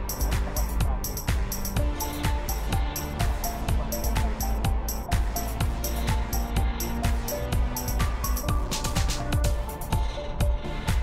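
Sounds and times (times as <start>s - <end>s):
electronic music: 0.0s - 11.0s.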